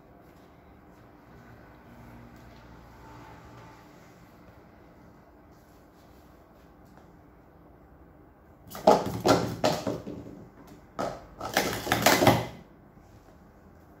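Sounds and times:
plastic cups clattering: 8.7s - 12.7s.

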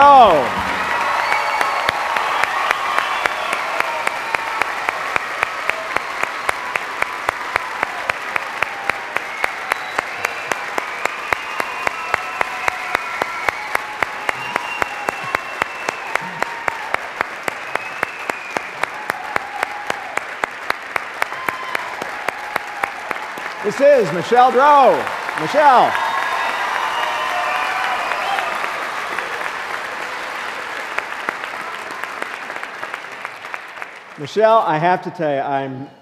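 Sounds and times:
audience applauding: 0.0s - 35.0s
rhythmic sharp claps: 0.4s - 26.6s.

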